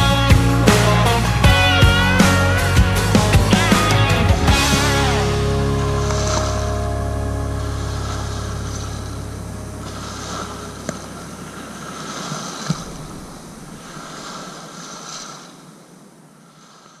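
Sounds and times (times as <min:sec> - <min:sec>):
small waves washing ashore: 0:02.6 - 0:17.0.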